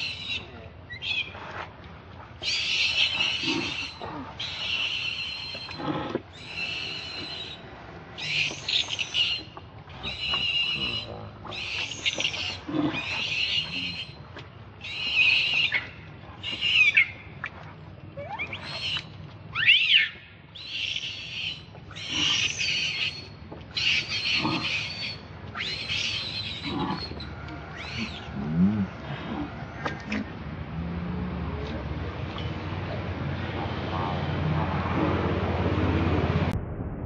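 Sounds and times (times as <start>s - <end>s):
infant monkey crying: 10.0s - 14.2s, 19.6s - 23.2s, 23.8s - 28.3s.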